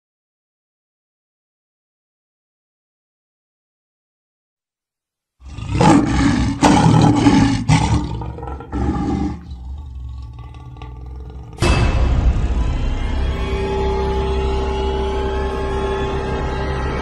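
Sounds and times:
lion roaring: 0:05.4 - 0:11.8.

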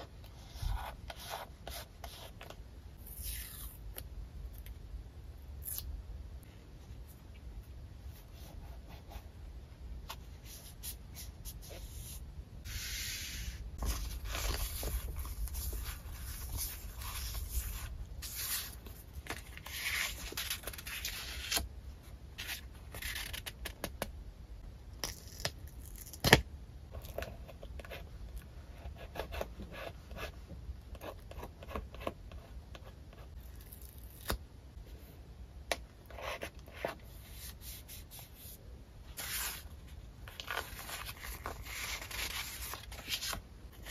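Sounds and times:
paper rustling and scraping: 0:12.7 - 0:21.6.

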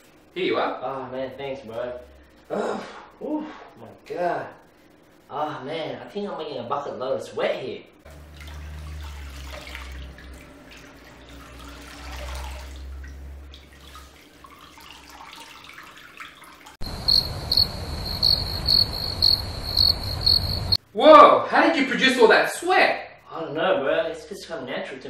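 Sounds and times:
water trickling and dripping: 0:08.1 - 0:20.8
crickets chirping: 0:16.8 - 0:20.8
low hum: 0:16.8 - 0:20.8.

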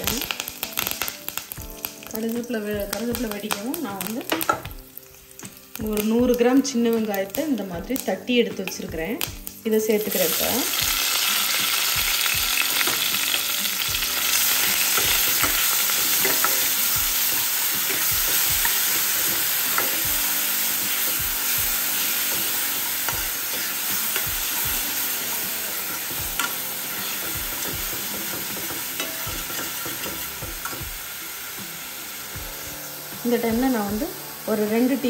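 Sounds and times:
shallots sizzling in hot oil: 0:00.0 - 0:35.0
steel spoon scraping a pan: 0:14.2 - 0:20.0, 0:20.6 - 0:30.8.

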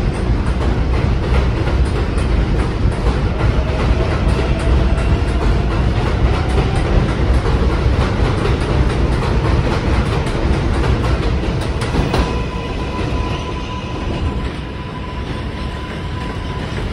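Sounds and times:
wheels clicking over rail joints: 0:00.0 - 0:13.1
train wheels rumbling on rails: 0:00.0 - 0:16.9.

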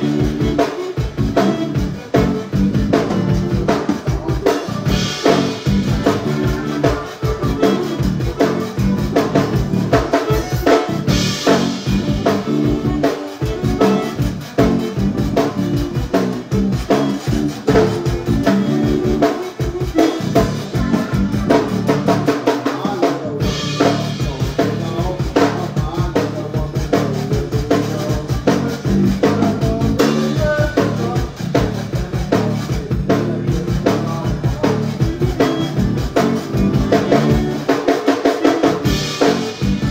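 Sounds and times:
drum kit beat: 0:00.0 - 0:39.9
zydeco band playing: 0:00.0 - 0:39.9.

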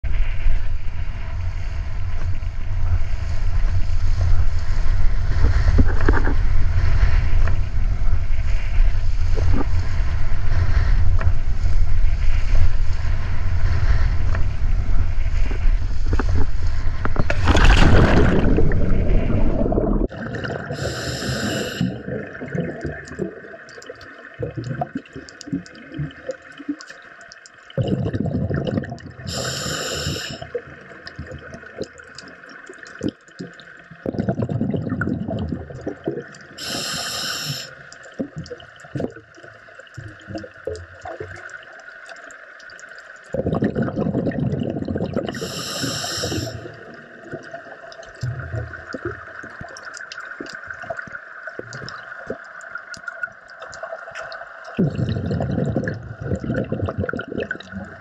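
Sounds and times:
low rumble: 0:00.0 - 0:20.1
water rushing and sloshing: 0:00.1 - 0:27.3
water gurgling and bubbling: 0:04.2 - 0:08.3, 0:14.2 - 0:42.2, 0:43.2 - 0:58.0
short bursts of hiss: 0:20.8 - 0:21.9, 0:29.3 - 0:30.4, 0:36.6 - 0:37.8, 0:45.4 - 0:46.6.

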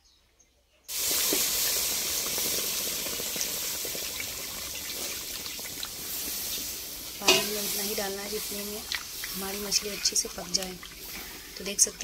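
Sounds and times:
water bubbling in pan: 0:00.9 - 0:12.0
water hissing in hot pan: 0:00.9 - 0:12.0.

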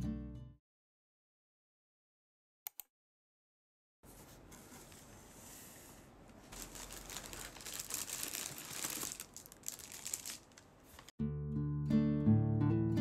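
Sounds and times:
plastic and paper crinkling: 0:06.4 - 0:11.1.

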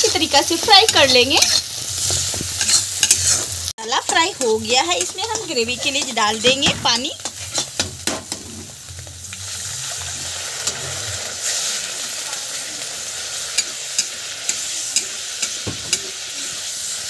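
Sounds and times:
spatula scraping a pan: 0:00.0 - 0:08.8
paste sizzling in hot oil: 0:00.0 - 0:17.0.

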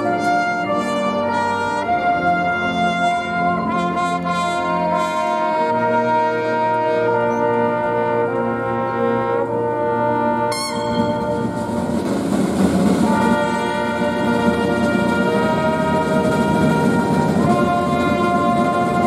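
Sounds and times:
brass band playing chords: 0:00.0 - 0:19.0
rushing noise: 0:10.6 - 0:19.0.

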